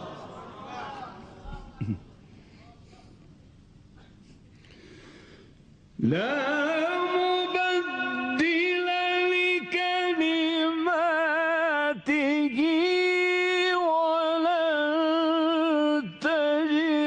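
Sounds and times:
man chanting melodic recitation: 6.0 - 17.0.

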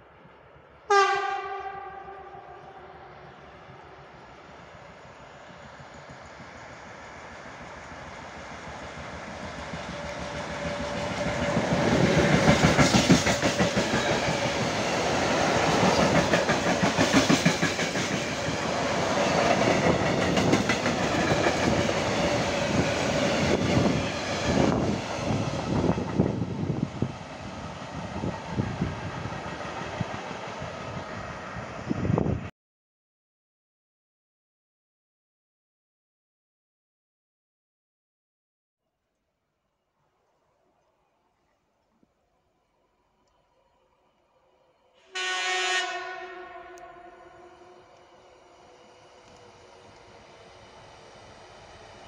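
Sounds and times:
electric locomotive passing: 0.0 - 32.5, 42.6 - 52.0
train wheels clattering over rail joints: 9.3 - 14.7.

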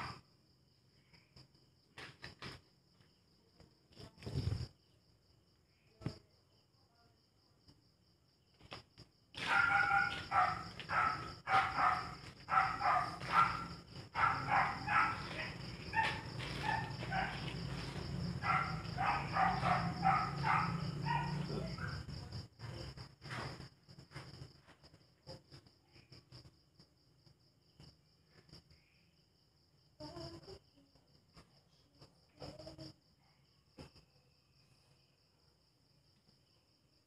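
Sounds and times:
crickets chirring: 0.0 - 37.0
dog barking: 9.4 - 22.2.

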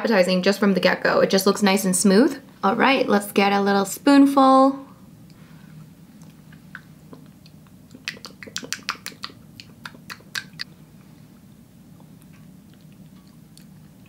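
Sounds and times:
low room hum: 0.0 - 14.0
wet mouth clicks and lip smacks: 6.2 - 10.7.

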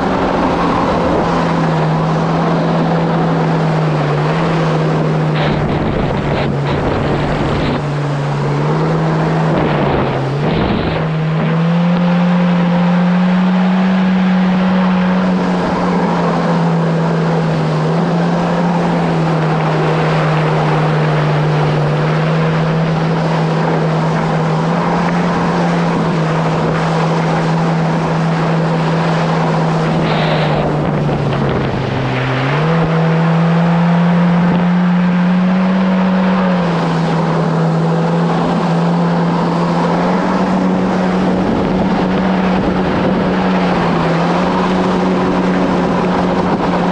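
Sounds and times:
jet ski engine drone: 0.0 - 46.9
rushing water and wind: 0.0 - 46.9.

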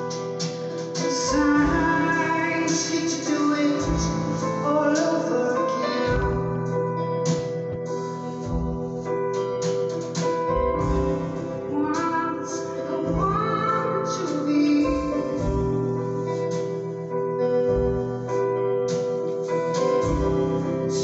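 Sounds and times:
drum and cymbal hits: 0.0 - 5.2, 7.3 - 12.1, 18.9 - 21.0
keyboard chords: 0.0 - 21.0
woman singing: 1.1 - 6.4, 11.7 - 15.8
deep bass notes: 1.2 - 4.9, 6.1 - 9.6, 10.4 - 12.1, 13.0 - 18.9, 19.8 - 21.0.

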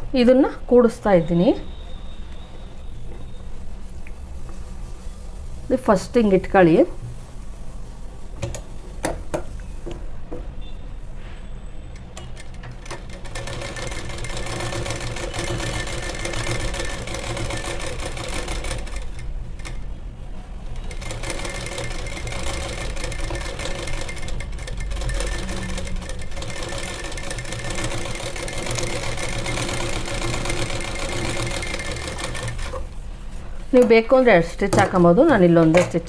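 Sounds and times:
sewing machine running: 12.0 - 19.8, 20.7 - 32.9.

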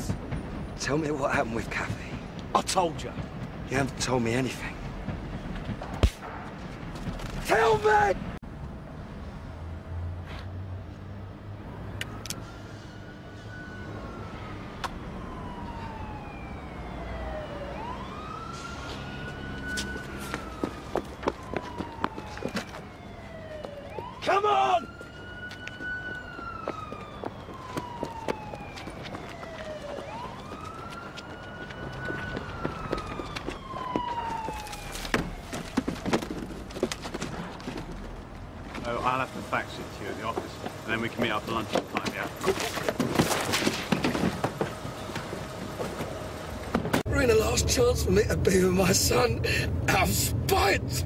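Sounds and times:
police siren wailing: 11.7 - 37.8, 38.8 - 51.0
running footsteps: 19.8 - 22.9, 24.8 - 38.9.

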